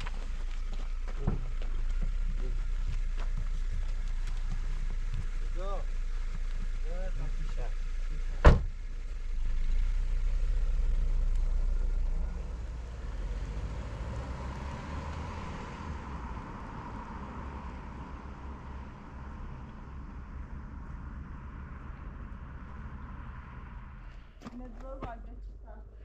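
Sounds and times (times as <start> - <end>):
car engine pulling away: 0.0 - 26.0
car door slamming: 8.3 - 8.8.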